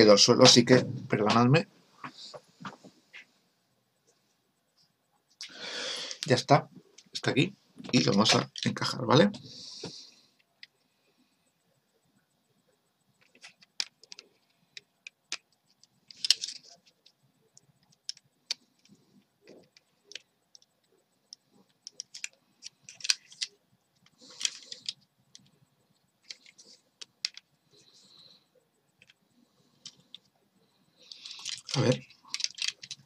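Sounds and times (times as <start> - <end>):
hard plastic clicking and scraping: 13.2 - 25.6, 26.2 - 28.3, 28.9 - 30.3, 31.0 - 33.0.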